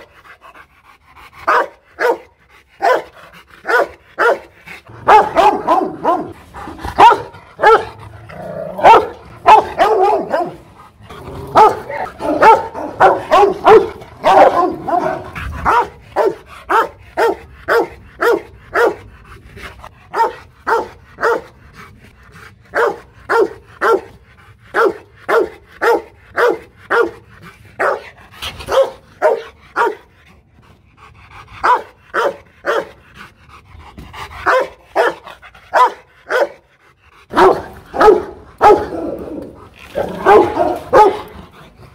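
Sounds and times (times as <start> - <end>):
dog barking: 1.5 - 8.0, 8.8 - 10.6, 11.5 - 19.0, 20.1 - 21.5, 22.7 - 24.1, 24.7 - 27.2, 27.8 - 28.1, 28.7 - 30.0, 31.6 - 33.0, 34.4 - 36.6, 37.3 - 39.2, 40.0 - 41.3.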